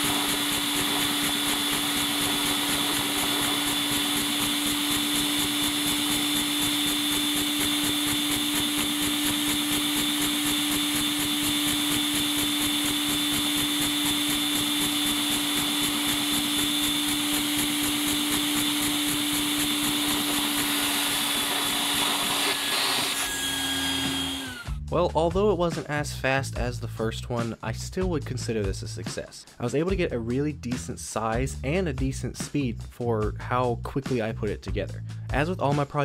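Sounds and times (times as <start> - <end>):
vacuum cleaner motor running: 0.0 - 24.8.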